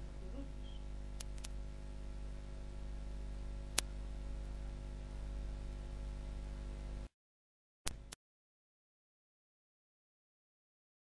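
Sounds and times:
electrical hum and hiss: 0.0 - 7.1.

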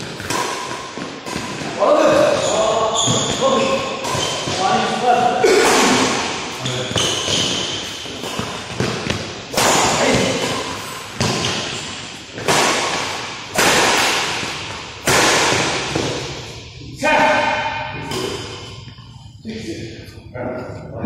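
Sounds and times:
racket hitting shuttlecock: 0.0 - 2.4, 3.0 - 4.6, 5.2 - 16.4.

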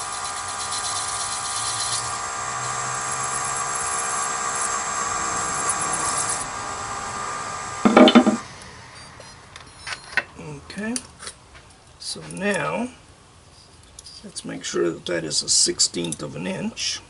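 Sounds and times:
wood lathe whining: 0.0 - 8.5
parting tool cutting hiss: 0.0 - 9.9.

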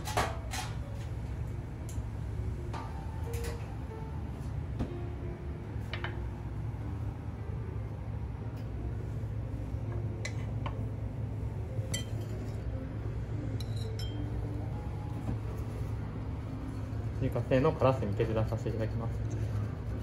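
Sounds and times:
steady low hum: 0.0 - 20.0
dishes and utensils clinking: 11.9 - 12.6, 13.6 - 14.2.

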